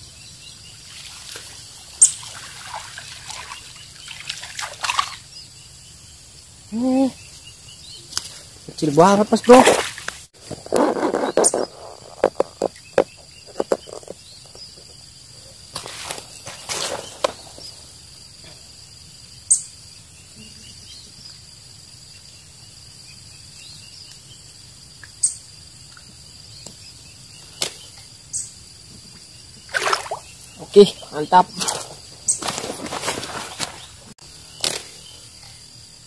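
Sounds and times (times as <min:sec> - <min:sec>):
insect drone: 0:00.0 - 0:36.0
handling clicks and rustles: 0:09.5 - 0:14.9.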